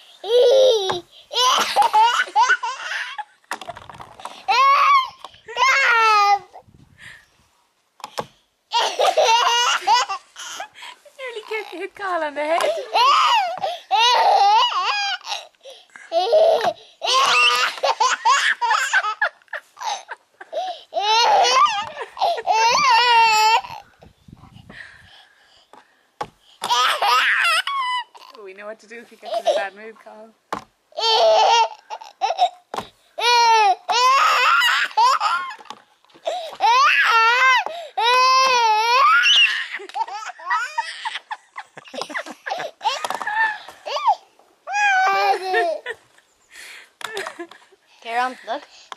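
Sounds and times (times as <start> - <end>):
toddler laughing: 0.2 - 3.3, 8.7 - 10.8, 16.2 - 23.8, 33.4 - 35.7, 38.2 - 46.0.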